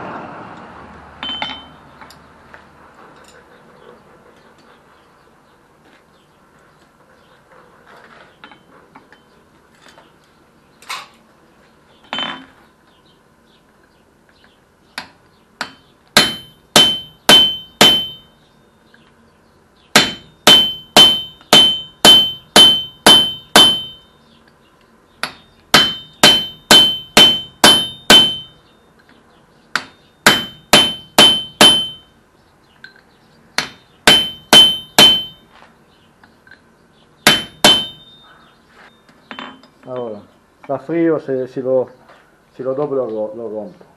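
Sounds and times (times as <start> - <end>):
hammer striking chisel on metal: 1.2 - 2.2, 15.0 - 18.4, 19.9 - 24.1, 25.2 - 28.6, 29.7 - 32.1, 33.6 - 35.5, 37.2 - 38.3.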